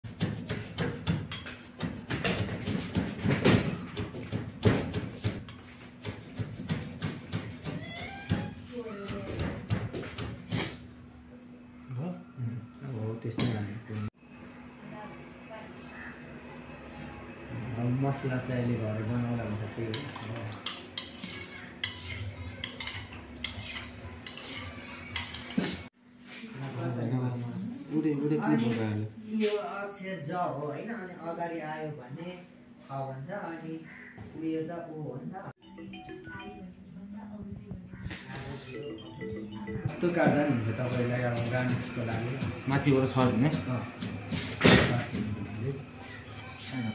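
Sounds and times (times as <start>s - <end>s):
knife chopping on plastic board: 0.1s - 5.4s, 6.0s - 10.4s, 40.8s - 45.3s
metal spoon stirring in ceramic bowl: 19.9s - 25.9s.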